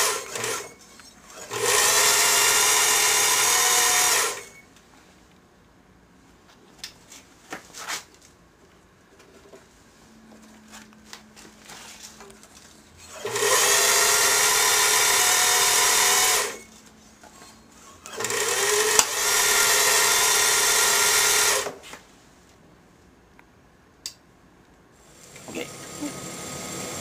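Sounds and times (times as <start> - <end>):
machine motor whirring hum: 25.1 - 27.0.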